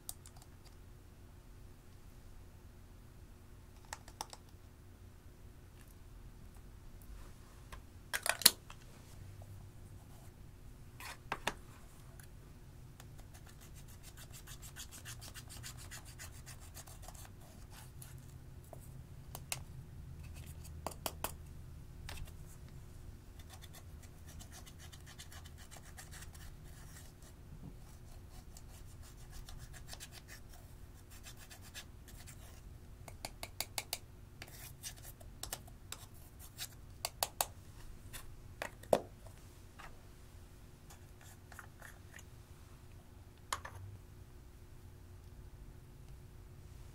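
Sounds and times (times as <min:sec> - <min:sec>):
fingers scratching eyeshadow: 0:13.2 - 0:18.3, 0:23.4 - 0:27.2, 0:27.9 - 0:32.6.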